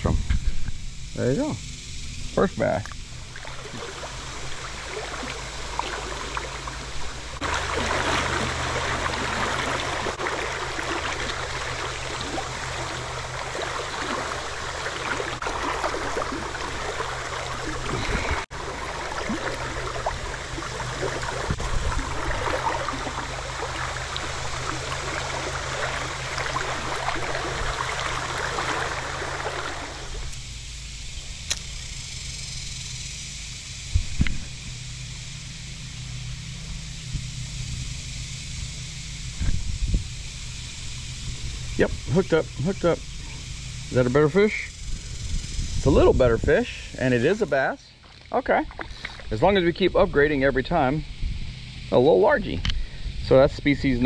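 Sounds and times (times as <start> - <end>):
low hum: 0.0 - 54.0
river water rushing: 3.1 - 30.4.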